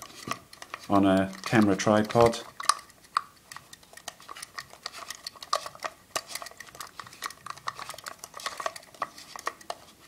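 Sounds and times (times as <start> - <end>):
plastic clattering against metal: 0.0 - 2.9.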